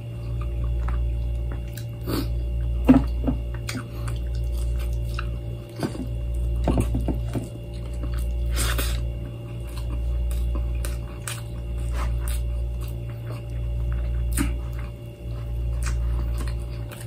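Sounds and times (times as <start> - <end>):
low steady hum: 0.0 - 17.0
wet chewing: 0.2 - 17.0.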